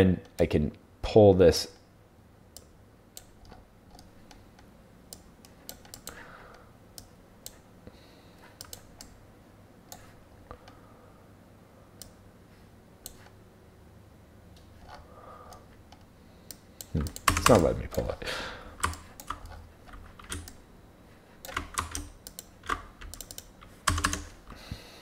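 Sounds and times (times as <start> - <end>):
faint low hum: 0.0 - 25.0
mouse and keyboard clicking: 18.8 - 20.6, 21.4 - 24.4.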